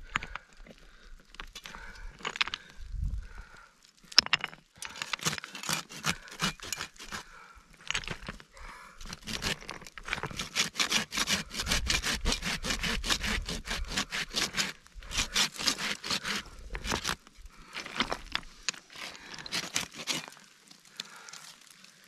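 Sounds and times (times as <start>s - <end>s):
blade cutting woody stems: 4.9s - 7.3s, 9.0s - 17.2s, 18.9s - 20.4s.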